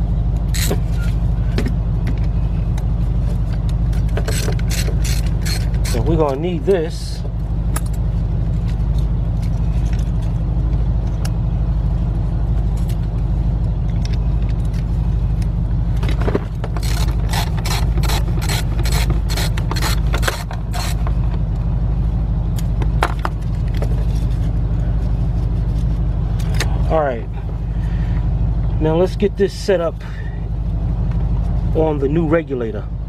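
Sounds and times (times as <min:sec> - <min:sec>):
steady low rumble: 0:00.0 - 0:33.0
hand tools clicking metallically: 0:04.3 - 0:06.1.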